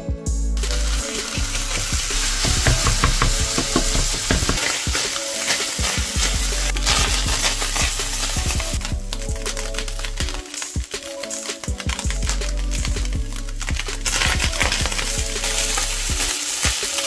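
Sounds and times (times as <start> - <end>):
meat sizzling in a skillet: 0.6 - 8.7, 13.7 - 17.0
utensil scraping and tapping: 1.7 - 7.2.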